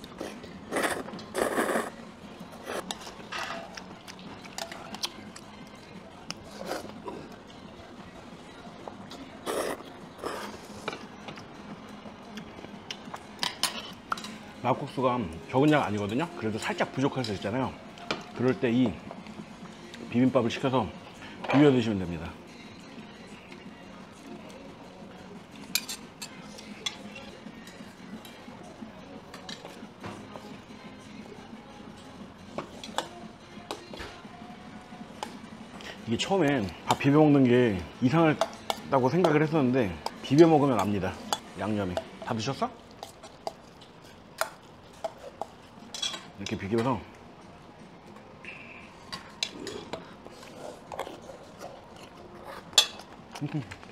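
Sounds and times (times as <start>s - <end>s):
chopsticks and spoons on metal bowls: 2.5s - 7.4s, 12.4s - 19.0s, 25.5s - 30.5s, 31.9s - 34.4s, 35.0s - 47.2s, 48.9s - 53.9s
spoon clinking on metal: 45.9s - 46.3s.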